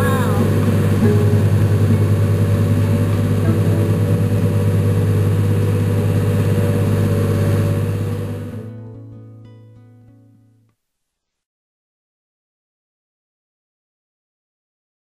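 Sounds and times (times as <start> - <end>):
boat engine humming: 0.0 - 8.8.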